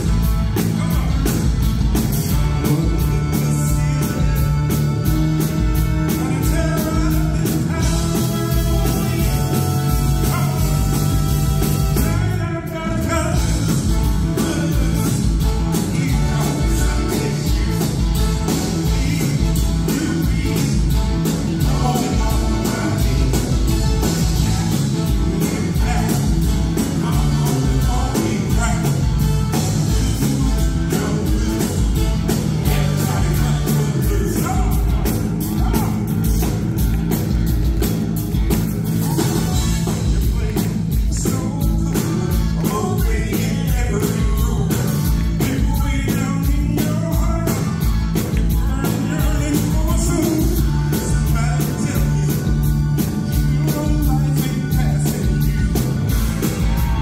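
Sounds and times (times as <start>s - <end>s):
man singing rock and roll: 0.0s - 37.9s, 38.9s - 57.0s
backing band playing: 0.0s - 57.0s.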